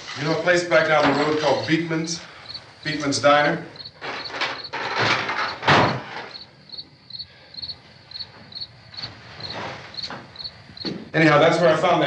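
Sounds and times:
crickets chirping: 0.0s - 12.0s
heavy wooden furniture scraping: 3.9s - 6.5s, 8.4s - 10.5s.

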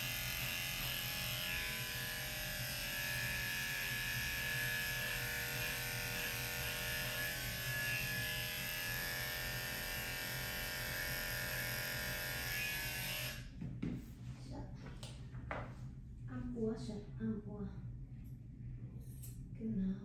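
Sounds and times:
electric clippers buzzing: 0.0s - 13.5s.

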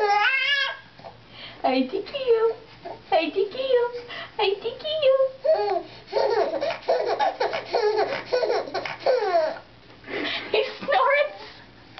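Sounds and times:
baby laughing: 5.4s - 9.7s.

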